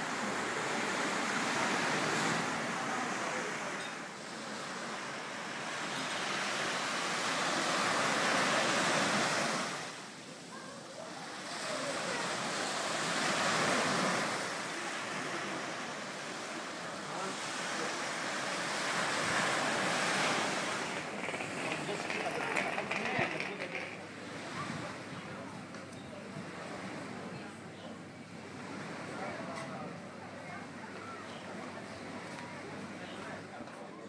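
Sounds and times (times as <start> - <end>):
small waves breaking on beach: 0.0 - 23.2.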